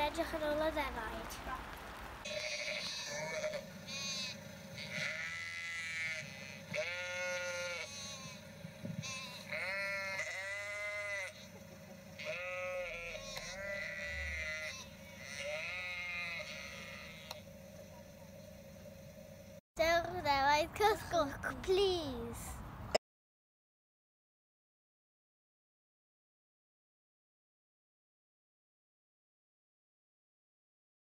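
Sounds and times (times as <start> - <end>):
sheep bleating: 2.2 - 11.6, 12.2 - 17.4.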